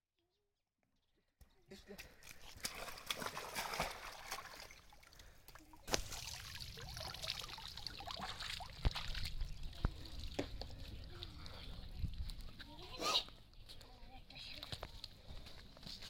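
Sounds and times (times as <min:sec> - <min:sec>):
water trickling and splashing: 0:01.9 - 0:13.0.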